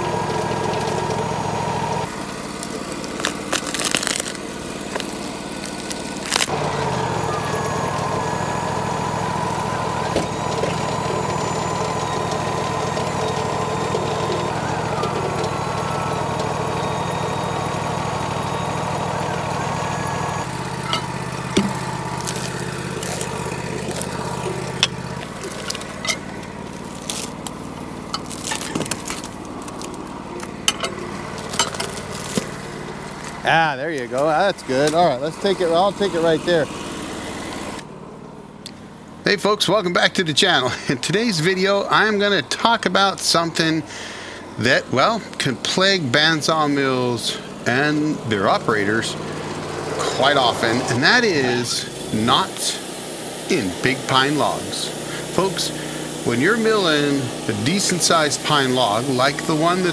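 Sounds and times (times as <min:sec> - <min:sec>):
sawmill engine running: 0:00.0 - 0:59.9
log clanks and knocks: 0:28.1 - 0:32.6.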